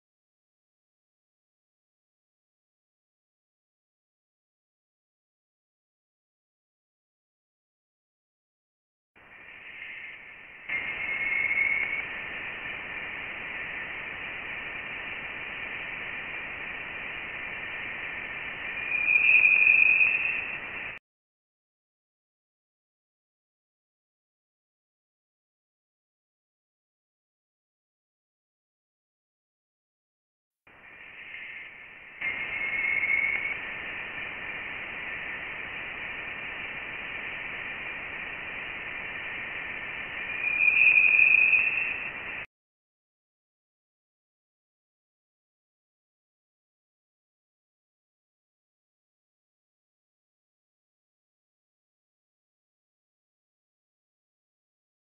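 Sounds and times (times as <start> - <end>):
steady hiss: 9.2 - 21.0, 30.7 - 42.5
faint tone: 9.4 - 21.0, 30.8 - 42.5.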